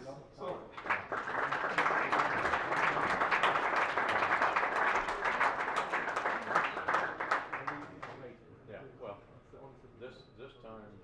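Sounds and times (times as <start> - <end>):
audience applauding: 0.7 - 8.1.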